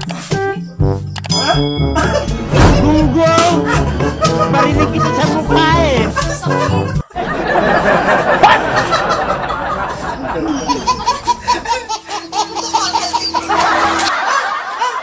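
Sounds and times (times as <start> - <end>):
background music: 0.0 - 15.0
people laughing: 1.9 - 15.0
baby laughing: 9.9 - 15.0.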